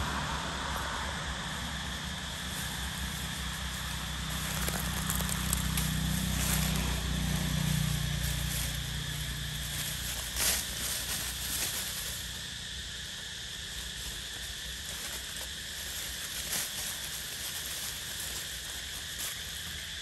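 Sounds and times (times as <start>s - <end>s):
light crackles: 4.3s - 7.0s.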